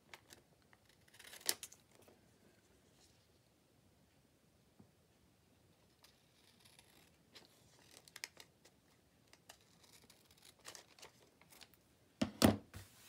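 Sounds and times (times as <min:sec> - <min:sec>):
scissors cutting paper: 0:06.0 - 0:11.7.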